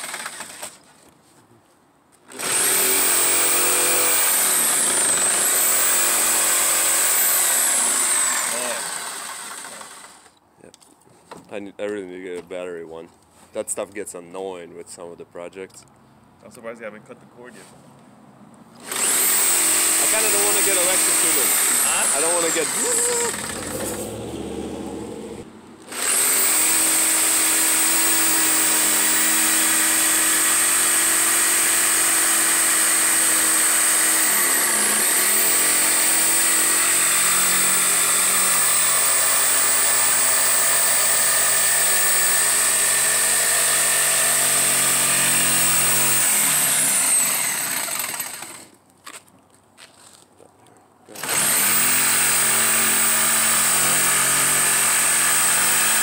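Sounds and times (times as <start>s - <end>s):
jigsaw cutting plywood: 0.0s - 0.8s, 2.3s - 10.3s, 18.8s - 48.8s, 51.1s - 56.0s.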